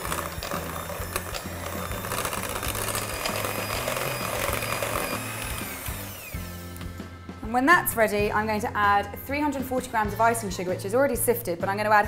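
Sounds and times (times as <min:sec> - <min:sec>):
electric hand mixer running: 0:00.0 - 0:07.2.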